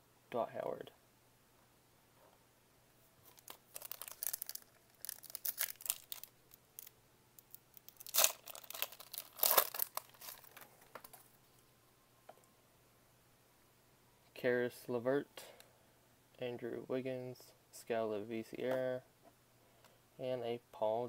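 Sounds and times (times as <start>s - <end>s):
foil wrapper crinkling and tearing: 3.3s - 11.2s.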